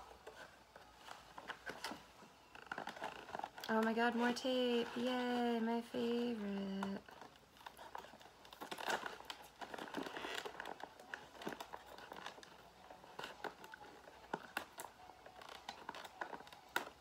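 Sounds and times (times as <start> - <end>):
plastic packaging crinkling: 0.0 - 17.0
tape peeling off plastic: 6.4 - 17.0.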